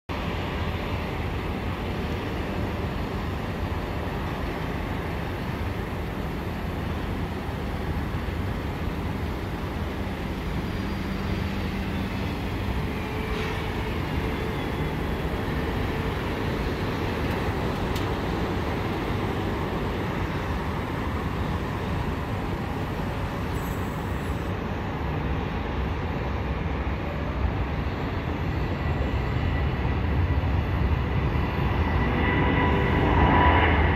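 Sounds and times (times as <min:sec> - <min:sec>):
distant jet engine rumble: 0:00.1 - 0:25.4.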